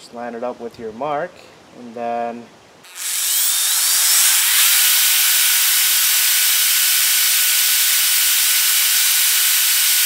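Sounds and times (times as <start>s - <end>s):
hiss of drill cutting plastic: 2.9s - 10.0s
power drill whine: 2.9s - 10.0s.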